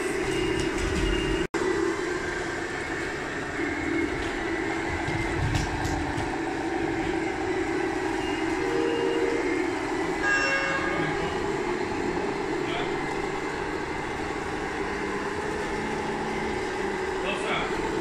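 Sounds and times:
truck horn toot: 8.7 - 9.4, 10.2 - 11.2.

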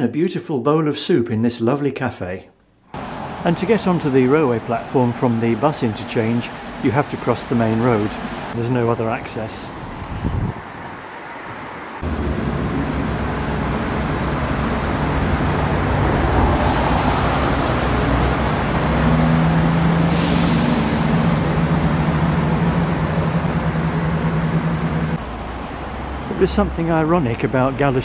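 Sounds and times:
tyres hissing on wet road: 3.0 - 8.6, 12.0 - 27.0
diesel train engine drone: 3.0 - 9.1, 10.8 - 28.0.

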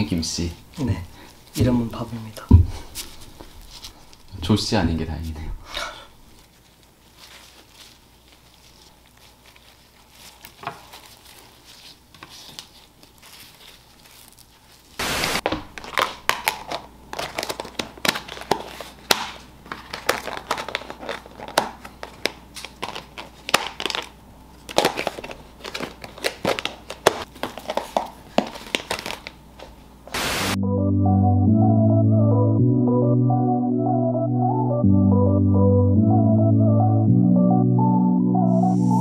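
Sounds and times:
plastic containers crinkling: 6.2 - 29.8.

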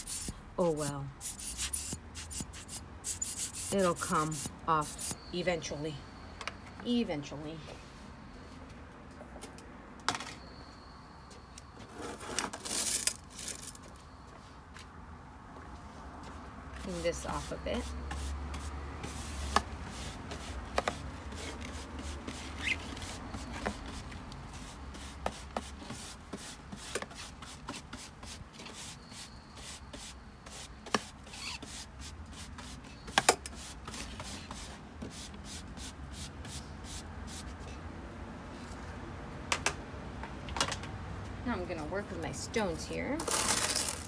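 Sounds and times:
stiff brush sweeping soil on wood: 16.8 - 32.8.

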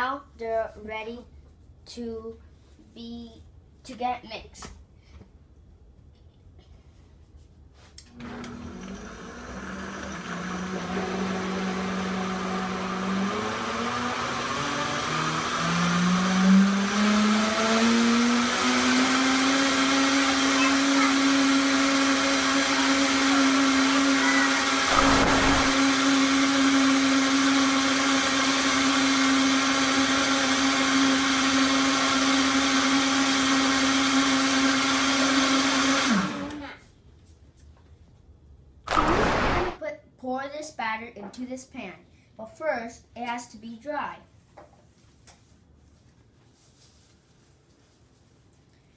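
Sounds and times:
blender motor: 8.2 - 36.8, 38.9 - 39.8.

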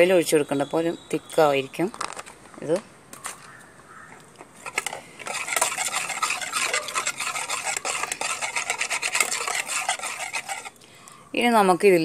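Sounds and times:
whisk clicking against bowl: 4.6 - 10.8.

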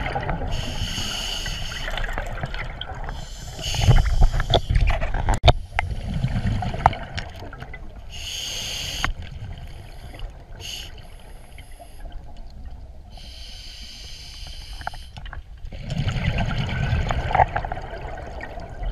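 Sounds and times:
exhaled bubbles underwater: 0.0 - 8.2, 15.7 - 18.9
hissing regulator inhalations: 0.5 - 2.1, 3.2 - 4.8, 8.1 - 9.1, 13.2 - 15.2.

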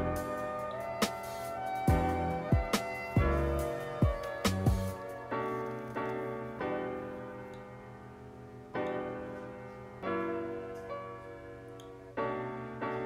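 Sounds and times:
soft keyboard chords: 0.0 - 13.0.

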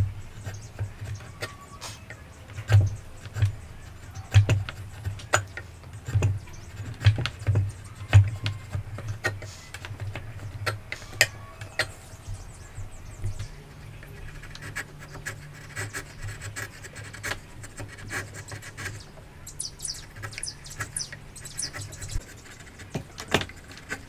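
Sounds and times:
chisel cracking through wood: 0.4 - 11.9, 22.8 - 24.0.

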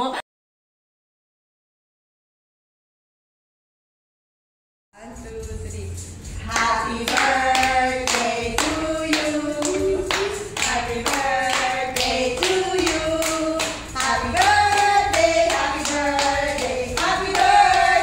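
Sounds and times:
women singing together: 6.4 - 18.0
hands clapping in time: 6.6 - 18.0.

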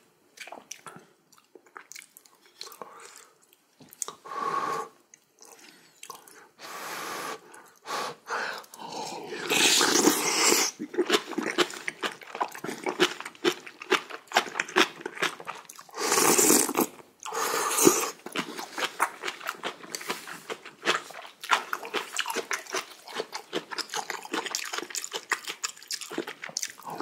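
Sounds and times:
wet chewing and mouth clicks: 0.4 - 4.2, 9.4 - 27.0.

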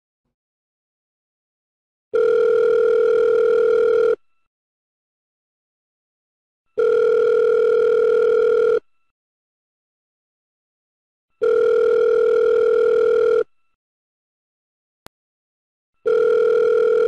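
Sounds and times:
telephone ringing: 2.1 - 4.2, 6.8 - 8.8, 11.4 - 13.5, 16.0 - 17.0.

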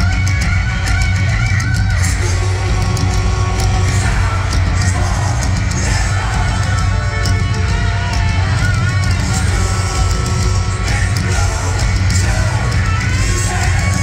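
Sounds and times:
hard rock band playing live: 0.0 - 14.0
man singing: 2.0 - 7.4, 9.2 - 14.0.

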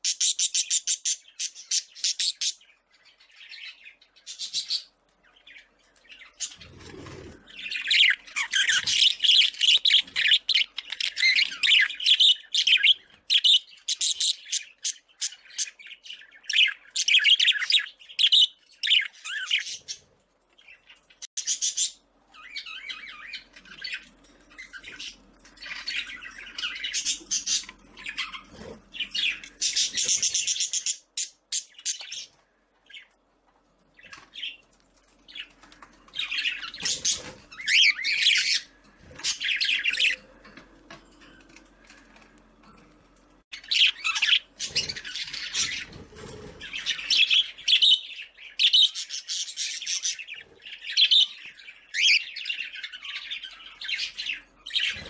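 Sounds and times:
budgerigars chattering and squawking: 6.2 - 20.0, 21.4 - 32.3, 35.4 - 40.4, 43.5 - 55.0.

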